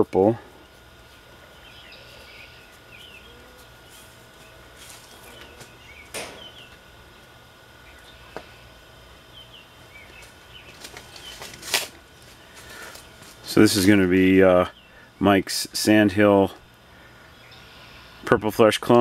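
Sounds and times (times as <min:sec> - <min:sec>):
faint hum: 0:00.0 - 0:19.0
small birds chirping: 0:00.5 - 0:11.6, 0:12.3 - 0:18.3
seedling trays rustling: 0:03.6 - 0:06.5, 0:10.0 - 0:14.4.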